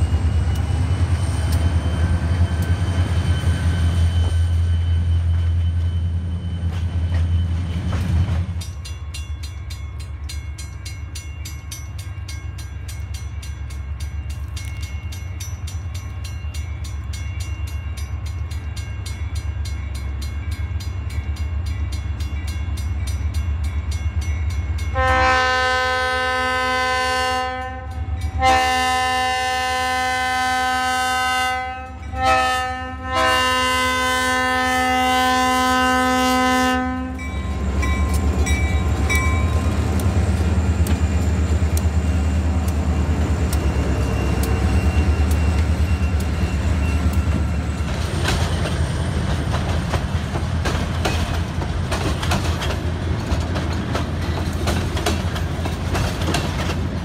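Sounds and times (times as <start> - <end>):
crossing bell clanging: 0.0 - 25.9, 27.7 - 28.7, 31.8 - 33.2, 36.8 - 57.0
locomotive air horn: 24.9 - 37.3.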